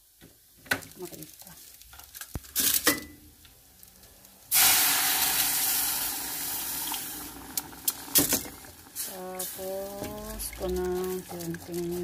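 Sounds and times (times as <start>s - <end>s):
water hissing in hot pan: 4.4s - 12.0s.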